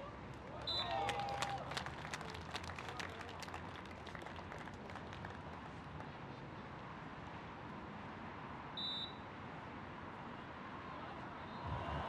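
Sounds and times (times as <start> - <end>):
scattered clapping: 0.3 - 6.1.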